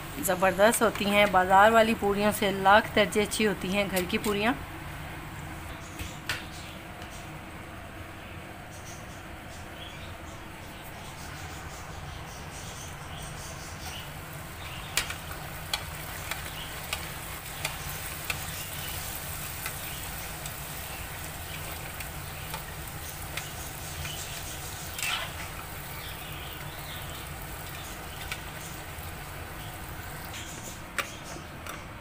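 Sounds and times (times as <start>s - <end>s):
food deep-frying in hot oil: 11.4s - 31.4s
loud oil crackle: 13.8s - 30.7s
sharp oil ticks: 14.9s - 18.9s, 23.3s - 24.8s.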